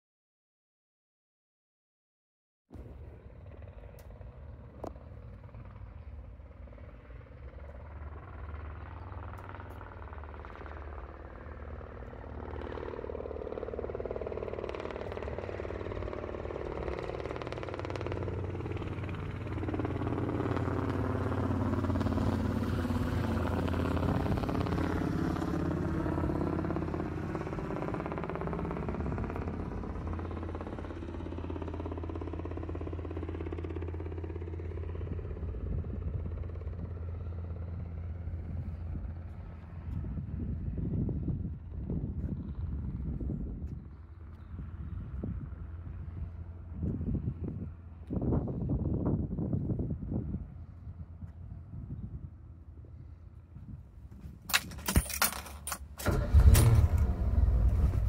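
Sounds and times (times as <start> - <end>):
car engine idling: 56.0 - 58.0.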